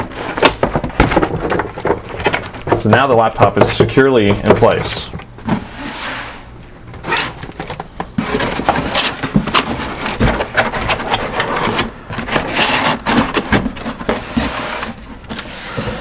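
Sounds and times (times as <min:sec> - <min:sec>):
cardboard scraping inside box: 0:05.4 - 0:07.4, 0:08.2 - 0:16.0.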